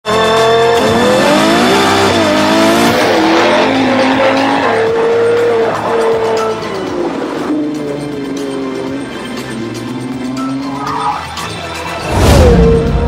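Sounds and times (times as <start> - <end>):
sports car engine revving: 0.1 - 10.7.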